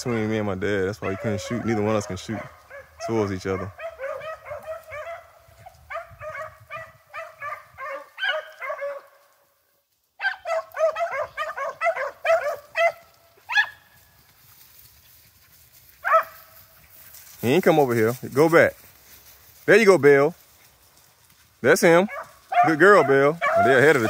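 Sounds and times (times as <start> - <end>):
hounds baying: 0.0 - 9.4, 10.2 - 14.0, 15.4 - 18.0, 21.8 - 24.0.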